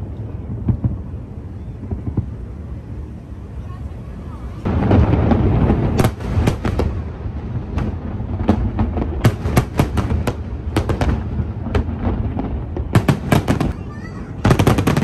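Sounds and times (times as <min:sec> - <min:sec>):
firework cracks and pops: 0:00.0 - 0:02.5, 0:04.7 - 0:15.0
deep rumbling firework boom: 0:00.0 - 0:03.1, 0:04.6 - 0:15.0.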